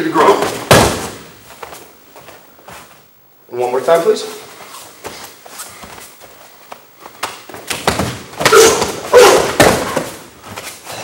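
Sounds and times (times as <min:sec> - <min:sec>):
body thudding onto mat: 0:00.4 - 0:01.3, 0:07.5 - 0:10.2.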